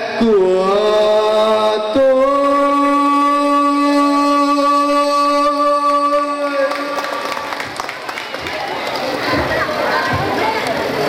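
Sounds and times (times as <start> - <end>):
person singing a long note: 0.0 - 7.0.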